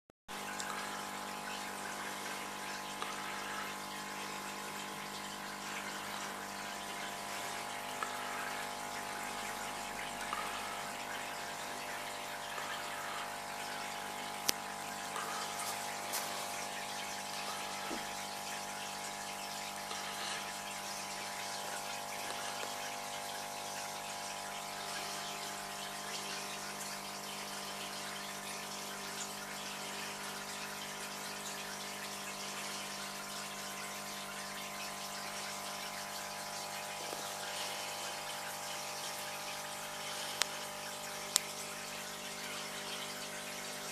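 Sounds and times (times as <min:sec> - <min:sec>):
aquarium filter water rushing: 0:00.3 - 0:43.9.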